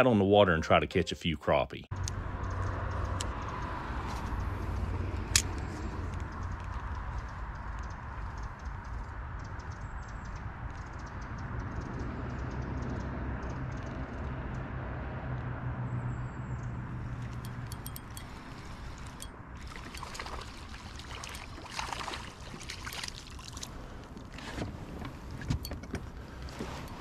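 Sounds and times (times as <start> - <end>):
handling clicks and knocks: 17.2 - 18.4, 24.9 - 27.0
fish splashing at surface: 19.6 - 23.8.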